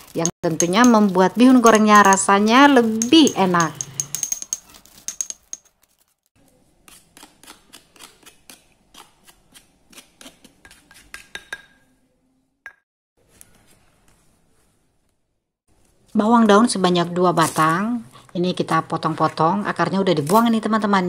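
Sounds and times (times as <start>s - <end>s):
spoon scraping stone: 0.0s - 6.0s
stone pestle grinding in mortar: 1.7s - 5.7s.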